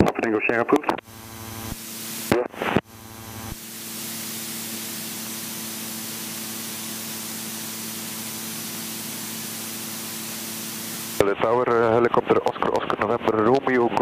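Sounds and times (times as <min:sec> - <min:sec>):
aircraft engine low hum: 0:01.0 - 0:11.2
headset intercom hiss: 0:01.6 - 0:02.8, 0:03.5 - 0:11.3.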